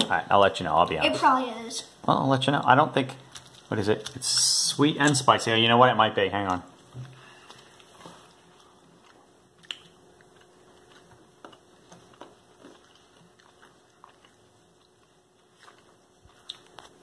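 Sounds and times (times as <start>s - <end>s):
chewing: 7.0s - 17.0s
mouth clicks and smacks: 9.6s - 11.6s.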